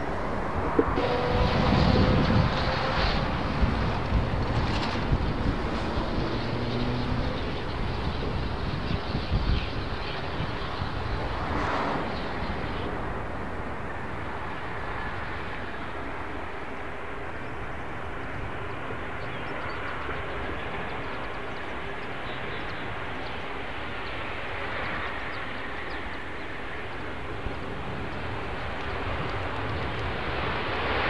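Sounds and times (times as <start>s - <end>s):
jet engines rushing with faint whine: 0.0s - 31.0s.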